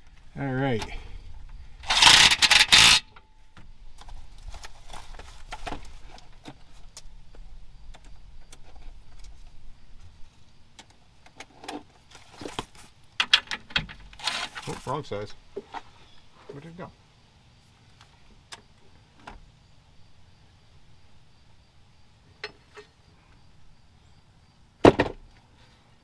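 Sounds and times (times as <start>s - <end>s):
tools rattling clatter: 1.8s - 3.2s.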